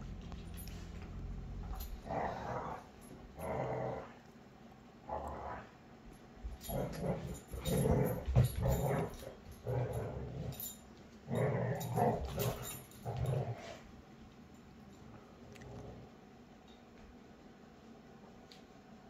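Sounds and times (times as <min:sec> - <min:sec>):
dogs growling: 0:00.0 - 0:04.3, 0:05.0 - 0:05.8, 0:06.5 - 0:13.9, 0:15.5 - 0:16.2.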